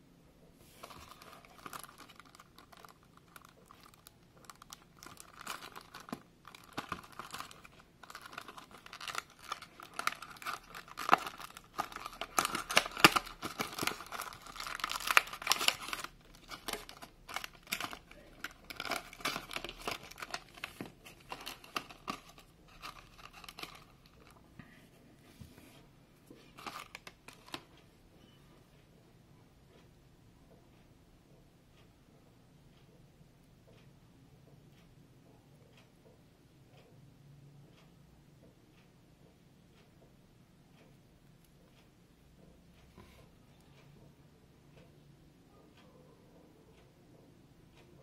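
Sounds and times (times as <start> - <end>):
plastic packaging crinkling: 0.7 - 24.4, 26.6 - 27.6.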